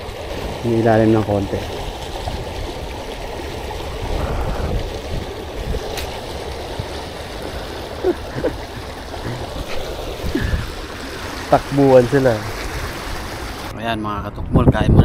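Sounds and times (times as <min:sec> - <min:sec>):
sea water lapping against rocks: 0:00.0 - 0:13.7
wind rumble on microphone: 0:01.6 - 0:07.5, 0:12.6 - 0:15.0.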